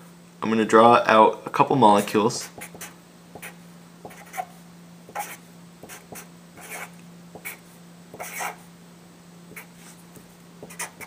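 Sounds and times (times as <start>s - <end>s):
steady low hum: 0.0s - 11.0s
marker scratching on a board: 2.0s - 8.6s, 9.5s - 11.0s.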